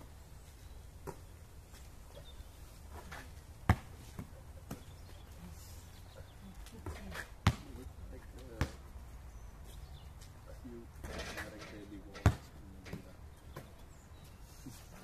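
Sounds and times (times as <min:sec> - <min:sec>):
basketball bouncing on asphalt: 0:01.0 - 0:01.3, 0:03.6 - 0:05.2, 0:06.8 - 0:07.8, 0:08.6 - 0:08.8, 0:12.2 - 0:13.8.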